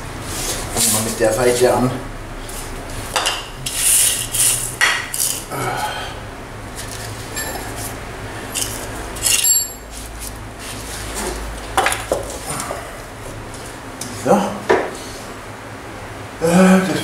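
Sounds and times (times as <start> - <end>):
metallic clinks and knocks: 7.3 - 7.8, 8.6 - 9.9.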